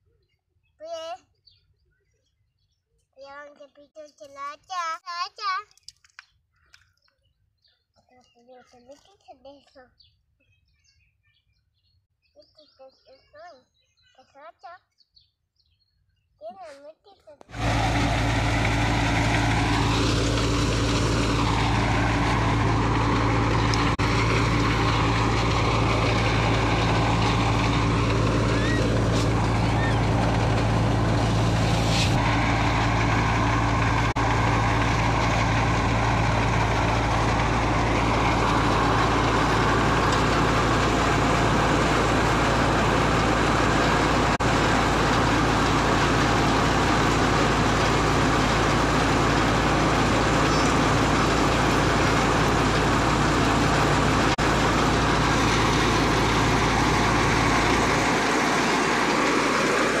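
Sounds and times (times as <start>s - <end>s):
threshing machine drone: 17.5s - 60.0s.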